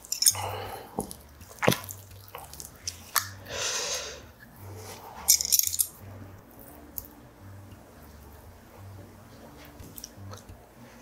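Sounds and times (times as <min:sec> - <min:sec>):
sticky rice squishing: 0:00.0 - 0:05.3.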